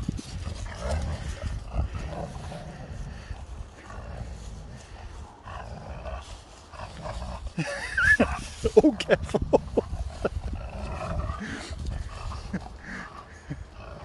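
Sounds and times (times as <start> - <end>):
low microphone rumble: 0.0 - 14.0
dog grumbling growls: 9.7 - 14.0.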